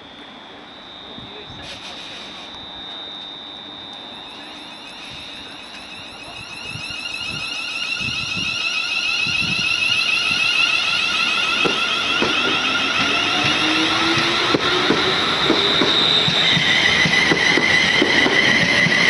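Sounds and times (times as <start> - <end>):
electric train motors whining: 0.0 - 19.0
train wheels knocking over rail joints: 11.4 - 19.0.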